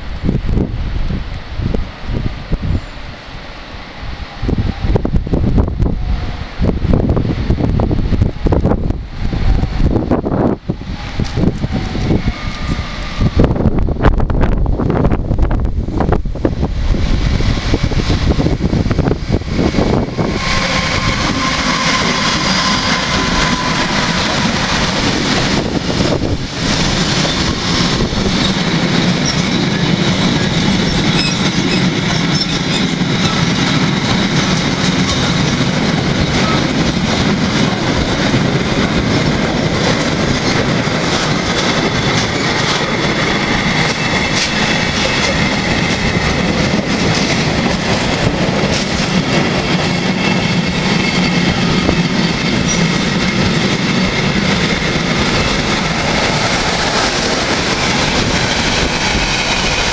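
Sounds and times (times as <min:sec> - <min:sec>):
train wheels clickety-clack: 0:17.0 - 0:59.9
high wheel squeal: 0:19.7 - 0:25.8, 0:26.7 - 0:33.6, 0:50.0 - 0:54.4.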